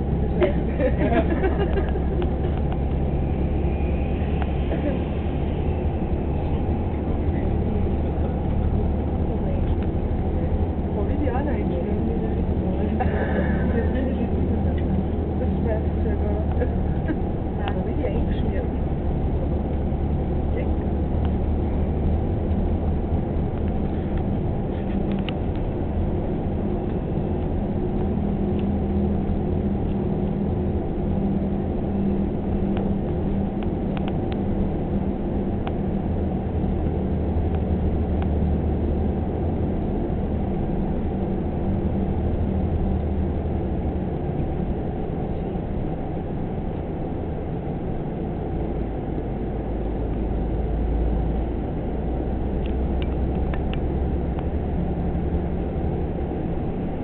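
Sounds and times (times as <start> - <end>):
car road noise rumble: 0.0 - 57.0.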